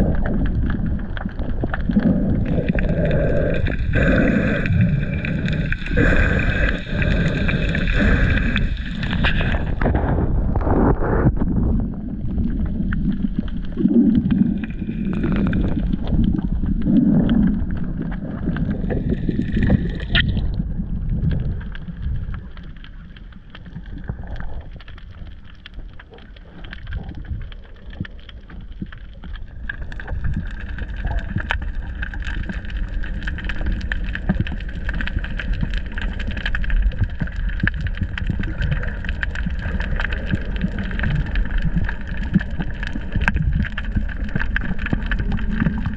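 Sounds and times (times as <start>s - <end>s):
underwater rumble and sloshing: 0.0s - 45.9s.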